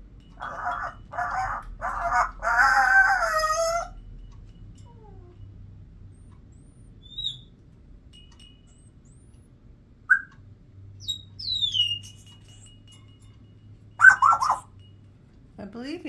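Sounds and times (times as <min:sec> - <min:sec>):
parrot chattering call: 0:00.4 - 0:04.0, 0:07.0 - 0:07.5, 0:10.1 - 0:10.3, 0:11.0 - 0:12.7, 0:14.0 - 0:14.8
parrot whistling and chirping: 0:07.0 - 0:07.6, 0:10.1 - 0:10.4, 0:11.0 - 0:12.9, 0:14.0 - 0:14.8.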